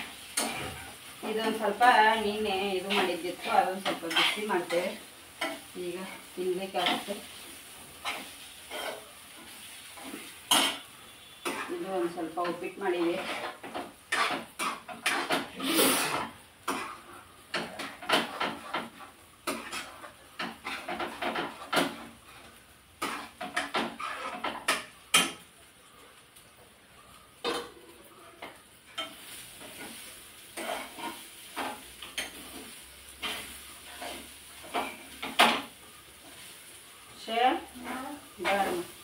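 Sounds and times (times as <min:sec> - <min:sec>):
spatula scraping frying pan: 0:00.0 - 0:25.4, 0:27.4 - 0:39.0.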